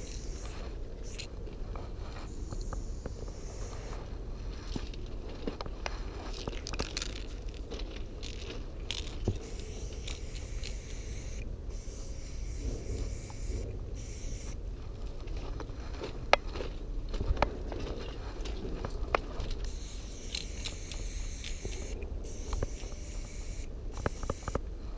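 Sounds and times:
spray paint can hissing: 0.0 - 1.3, 2.3 - 4.0, 9.4 - 14.6, 19.7 - 24.6.

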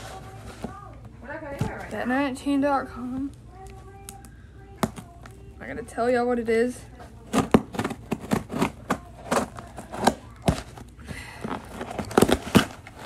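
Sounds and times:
knife scraping cardboard: 7.4 - 10.1.

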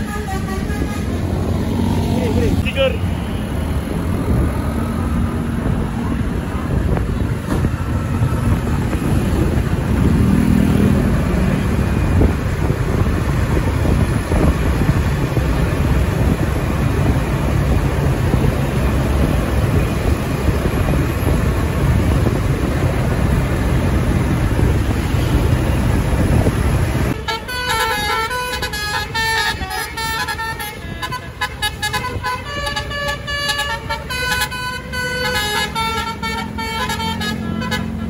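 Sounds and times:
multi-tone air horn melody: 0.0 - 1.3, 27.1 - 38.0
bus engine rumbling: 0.0 - 38.0
street traffic: 0.0 - 38.0.

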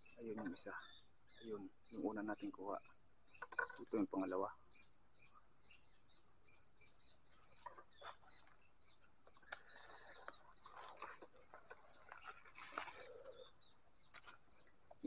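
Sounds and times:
rustling in dry leaf litter: 9.5 - 14.5.

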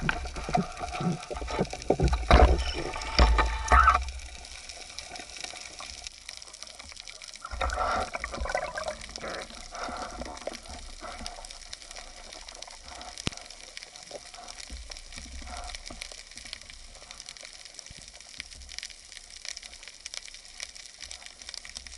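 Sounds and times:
low underwater rumbles: 0.0 - 17.2
underwater fizzing crackle: 0.0 - 21.9.

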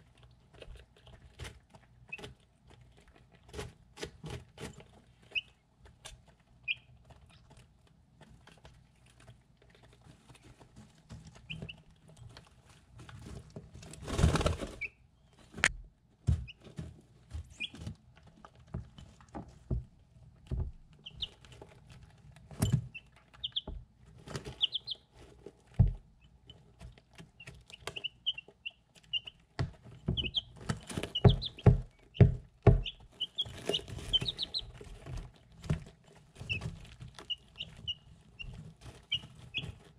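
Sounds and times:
chicks peeping: 0.0 - 15.5, 16.3 - 18.0, 20.5 - 39.9
beaks tapping on ceramic bowl: 30.0 - 34.7.

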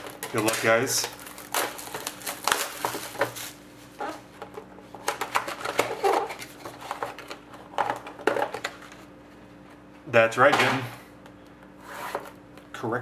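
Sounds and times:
paper rustling: 0.0 - 4.2
plastic wrap crinkling: 0.0 - 4.3, 5.1 - 9.0.

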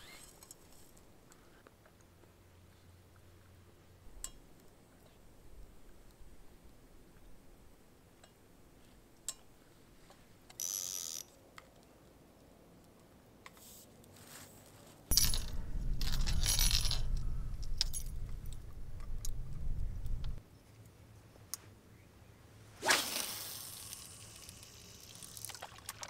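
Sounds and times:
wind rumble on microphone: 15.1 - 20.4.

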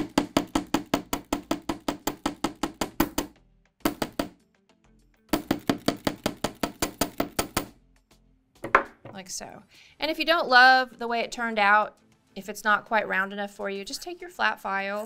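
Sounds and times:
hammer striking wire on metal: 0.0 - 4.4, 5.3 - 7.7.

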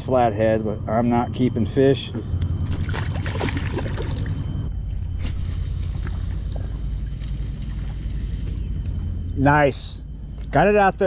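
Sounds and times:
diesel engines droning: 0.0 - 11.0
fish splashing in water: 2.6 - 4.4.

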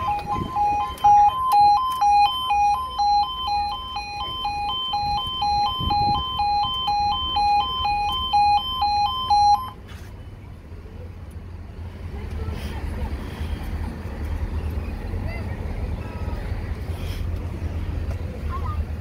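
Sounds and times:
level crossing two-tone warning alarm: 0.0 - 9.8.

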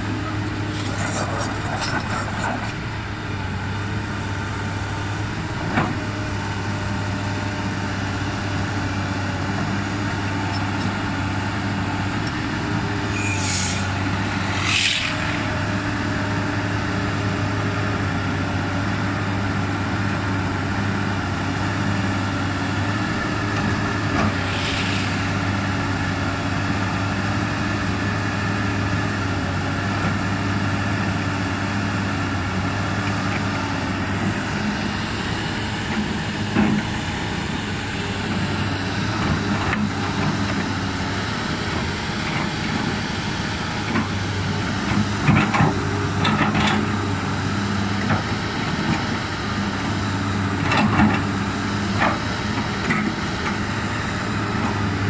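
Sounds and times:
excavator diesel engine running: 0.0 - 55.0
brief hisses: 13.2 - 15.4, 24.4 - 25.4.

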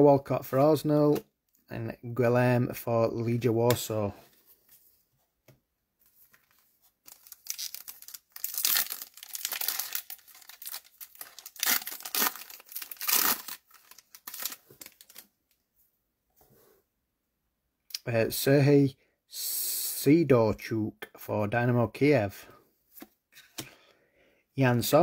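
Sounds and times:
foil wrapper tearing and crinkling: 6.4 - 15.2.

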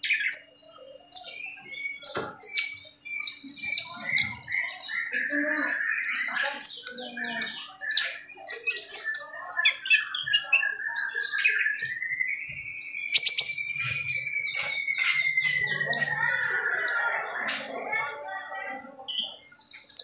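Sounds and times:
sunbird chirping: 0.0 - 20.0.

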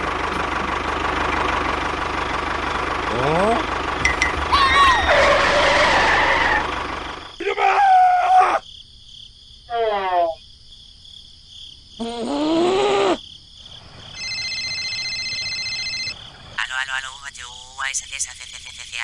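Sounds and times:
low engine rumble: 0.0 - 7.4
electronic ringing tone: 4.0 - 4.4, 14.2 - 16.2.

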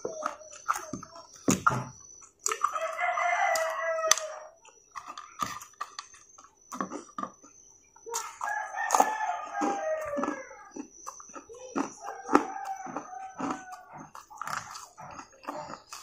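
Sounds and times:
crunchy chewing: 0.0 - 16.0
rooster crowing: 2.6 - 4.6, 8.4 - 10.8, 12.0 - 14.2.

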